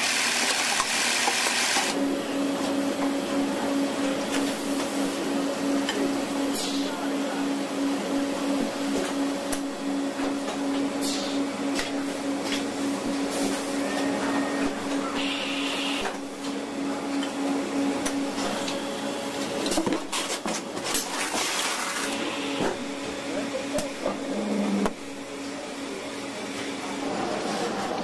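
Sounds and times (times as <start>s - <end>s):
machinery humming: 1.8s - 21.2s, 21.8s - 28.0s.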